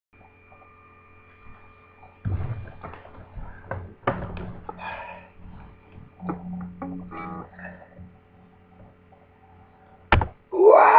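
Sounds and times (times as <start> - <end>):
amplifier hum: 0.2 - 10.9
low guitar string ringing: 6.1 - 8.2.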